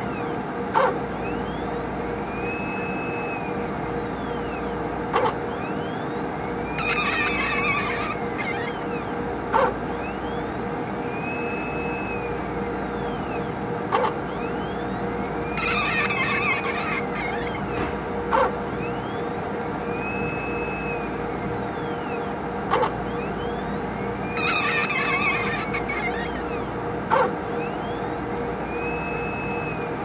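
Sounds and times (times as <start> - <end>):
pump humming: 5.2 - 13.2, 13.9 - 27.1
high squealing: 6.7 - 9.0, 15.4 - 17.8, 24.0 - 26.7.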